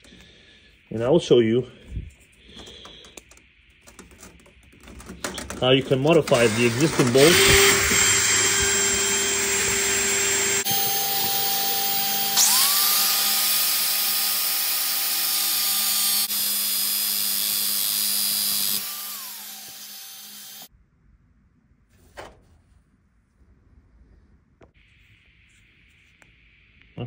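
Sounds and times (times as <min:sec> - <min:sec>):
angle grinder grinding metal: 0:05.5 - 0:20.7
cordless drill motor: 0:05.9 - 0:20.7.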